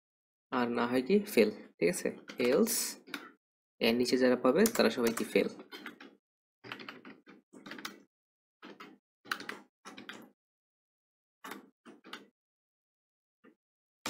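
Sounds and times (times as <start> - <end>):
keyboard typing: 2.2 - 3.4, 4.6 - 10.3.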